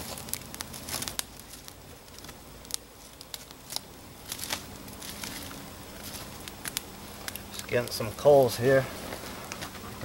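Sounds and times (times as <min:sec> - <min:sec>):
sharp pops and snaps: 0:00.0 - 0:07.9
campfire crackling: 0:00.0 - 0:10.0.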